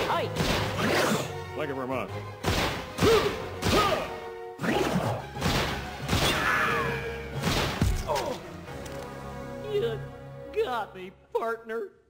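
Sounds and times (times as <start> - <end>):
sharp bangs and whacks: 0.0 - 1.3, 2.3 - 6.5, 7.3 - 8.4
music: 0.0 - 12.0.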